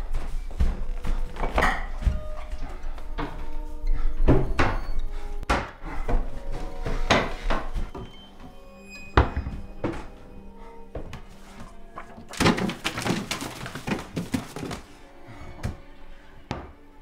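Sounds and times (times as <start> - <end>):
low music score: 0.0 - 17.0
packages rustling and clattering: 11.0 - 15.0.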